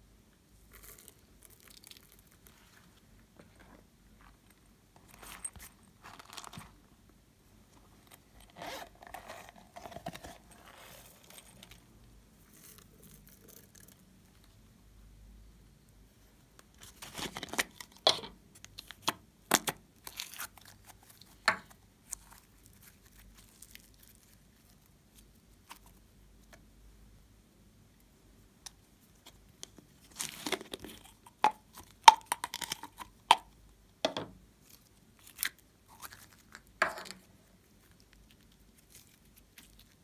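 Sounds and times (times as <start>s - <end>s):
slime crinkly rustling: 0.7s - 3.0s, 5.0s - 6.9s, 16.7s - 18.0s, 20.0s - 26.0s, 29.7s - 33.0s, 37.6s - 40.0s.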